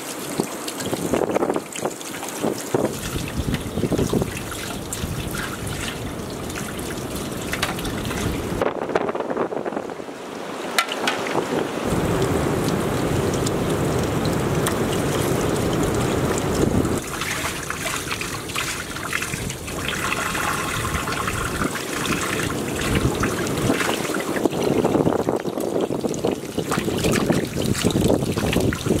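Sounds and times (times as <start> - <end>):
water splashing onto fish: 0.0 - 8.6, 10.6 - 29.0.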